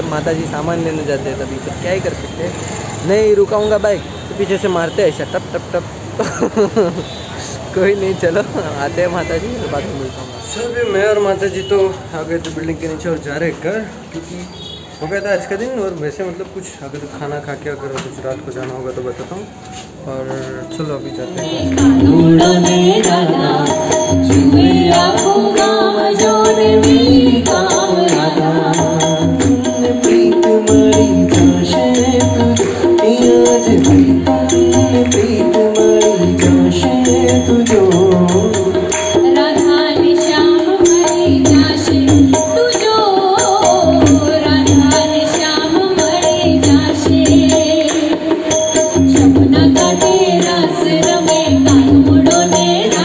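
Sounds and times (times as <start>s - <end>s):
jingling hand percussion: 19.8s - 53.0s
man and woman singing: 21.0s - 53.0s
tabla drumming: 21.1s - 53.0s.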